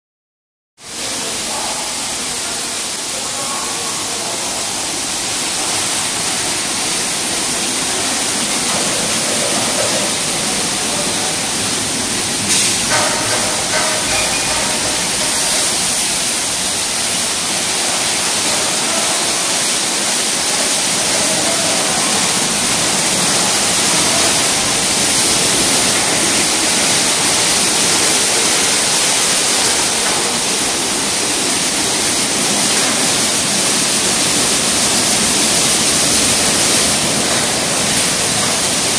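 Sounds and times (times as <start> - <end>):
car wash spray and brushes: 1.0 - 38.9.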